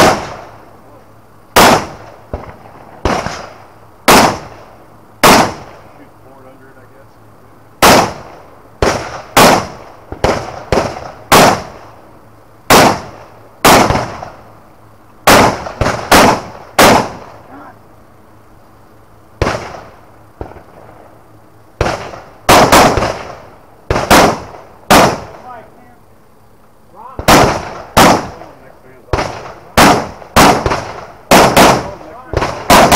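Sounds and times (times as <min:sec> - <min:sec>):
rifle shots: 0:00.0 - 0:00.6, 0:01.5 - 0:05.9, 0:07.8 - 0:12.0, 0:12.7 - 0:14.4, 0:15.2 - 0:17.4, 0:19.4 - 0:20.9, 0:21.8 - 0:25.6, 0:27.1 - 0:32.9.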